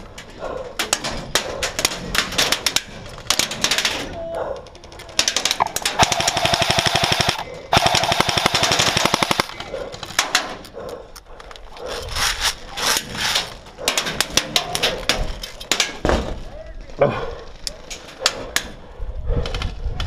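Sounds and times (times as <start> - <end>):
airsoft rifle firing: 5.1 - 10.6.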